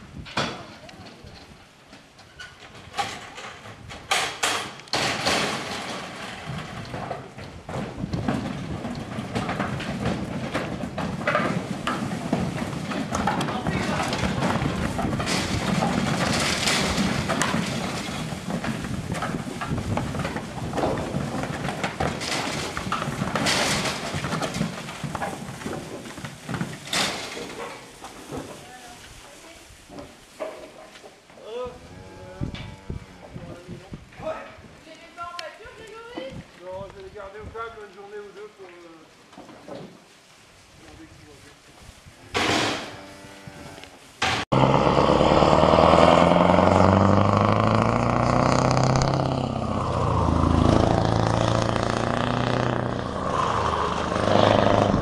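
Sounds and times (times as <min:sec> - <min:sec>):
cattle moving on trailer deck: 0:00.0 - 0:55.0
metal gates clanking: 0:02.2 - 0:06.7
noisy rushes: 0:44.5 - 0:55.0.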